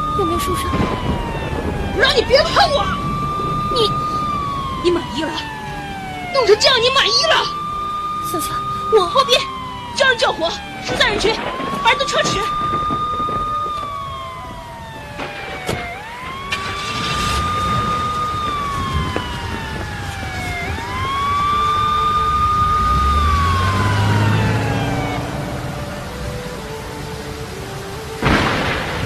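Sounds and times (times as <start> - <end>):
emergency vehicle siren wailing: 0.0 - 29.0.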